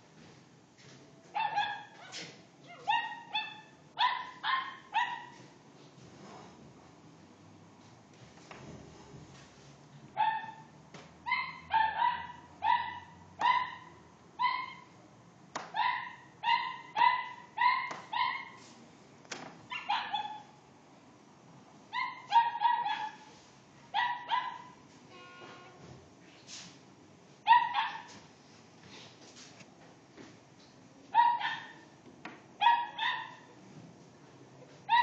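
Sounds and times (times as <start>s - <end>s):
dog barking: 1.4s - 5.4s, 10.2s - 10.7s, 11.3s - 15.0s, 15.7s - 18.6s, 19.7s - 20.5s, 22.0s - 23.3s, 23.9s - 24.8s, 27.5s - 28.2s, 31.1s - 31.9s, 32.6s - 33.6s.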